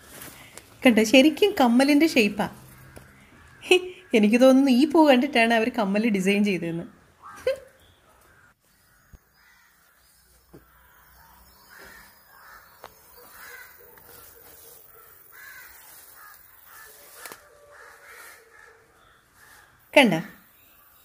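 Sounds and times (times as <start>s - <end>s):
crows cawing faintly: 2.6s - 4.7s, 7.1s - 19.9s.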